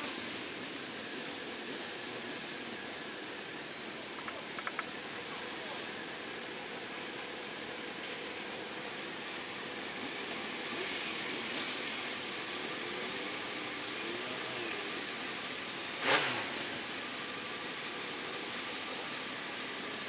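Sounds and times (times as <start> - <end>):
motorcycle engines idling: 0.0 - 20.0
loud engine burst: 16.0 - 17.1.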